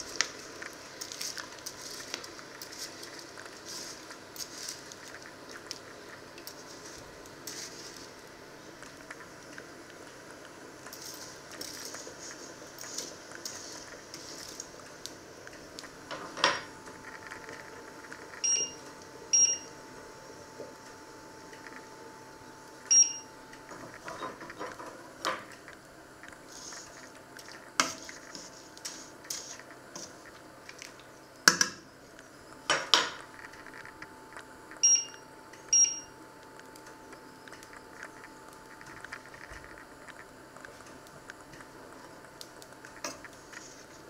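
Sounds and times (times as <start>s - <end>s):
boiling water: 0.0s - 44.0s
faint steady whine: 0.0s - 44.0s
hob touch control beeps: 18.4s - 19.7s, 22.9s - 23.3s, 34.8s - 36.1s.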